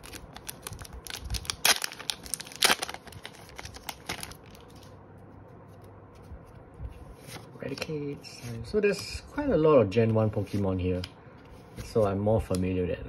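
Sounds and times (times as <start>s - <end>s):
sharp foil rips: 0.0s - 4.7s
foil pack tearing and crinkling: 0.0s - 4.9s.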